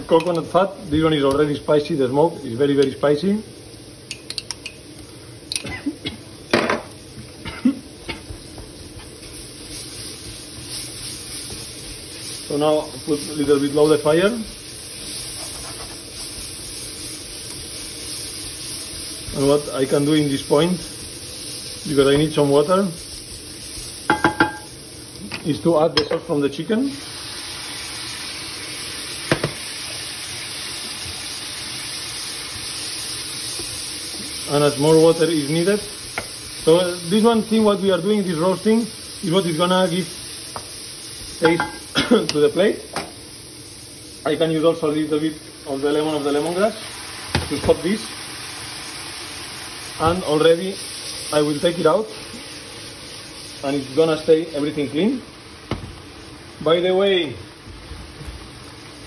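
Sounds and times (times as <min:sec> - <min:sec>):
food sizzling: 0:00.0 - 0:59.0
spatula scraping frying pan: 0:15.2 - 0:16.1.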